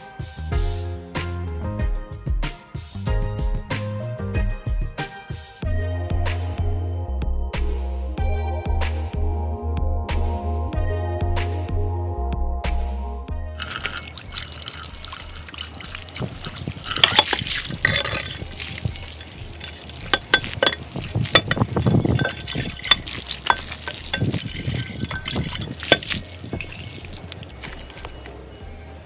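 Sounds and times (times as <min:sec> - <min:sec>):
water splashing into metal pot: 0:13.6 - 0:28.2.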